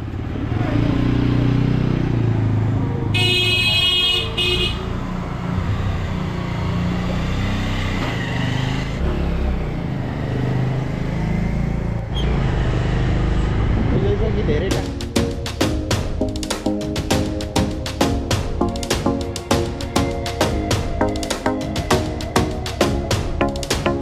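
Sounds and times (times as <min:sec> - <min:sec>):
horn honking: 0:03.1 - 0:05.0.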